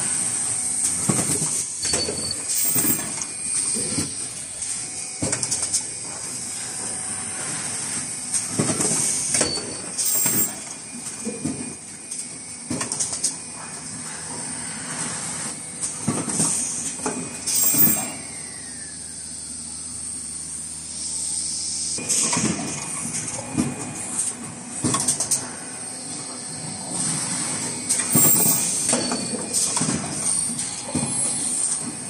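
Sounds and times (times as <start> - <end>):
machine hiss: 0.0 - 24.2, 25.1 - 32.0
pneumatic clacks and knocks: 0.8 - 6.2, 6.8 - 13.9, 15.8 - 18.2, 22.0 - 25.6, 26.8 - 32.0.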